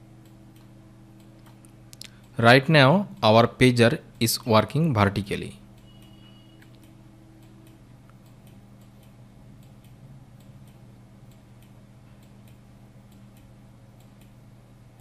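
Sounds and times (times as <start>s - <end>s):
low electrical hum: 0.0s - 15.0s
computer mouse clicking: 0.2s - 2.4s, 5.7s - 14.4s.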